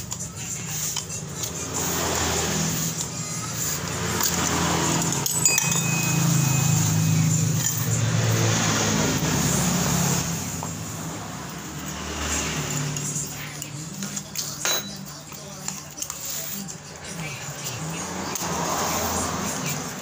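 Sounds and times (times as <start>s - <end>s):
vehicle engine running: 0.0s - 14.3s
metal clink: 4.2s - 6.7s, 14.4s - 15.0s.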